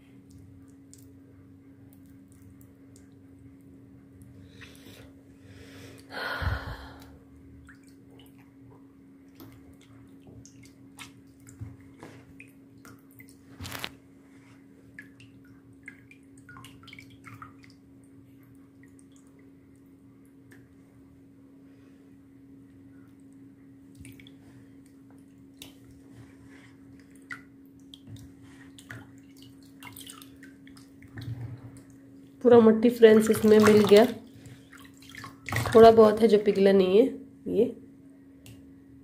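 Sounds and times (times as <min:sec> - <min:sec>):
steady low hum: 0:00.0 - 0:39.0
water drips and splashes: 0:00.2 - 0:01.2, 0:01.9 - 0:03.3, 0:07.6 - 0:13.9, 0:14.9 - 0:20.8, 0:23.1 - 0:26.0, 0:27.0 - 0:32.0, 0:33.0 - 0:36.6
clay slurry squelching by hand: 0:33.0 - 0:36.6.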